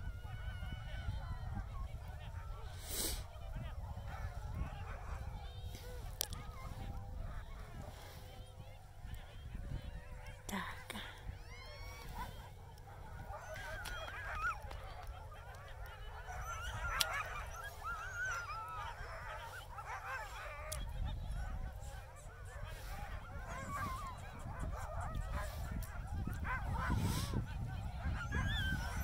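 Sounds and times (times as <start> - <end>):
dogs howling and whining: 0.0 - 2.8, 3.4 - 10.5, 11.2 - 29.0
wind rumble on microphone: 0.0 - 29.0.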